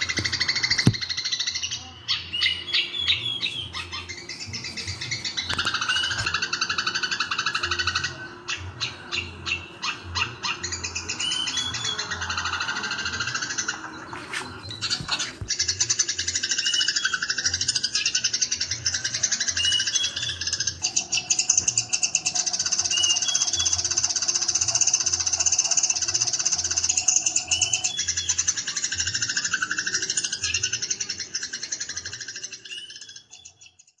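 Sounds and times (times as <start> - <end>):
bulbul song: 0.0 - 34.0
sparrows chattering: 0.0 - 34.0.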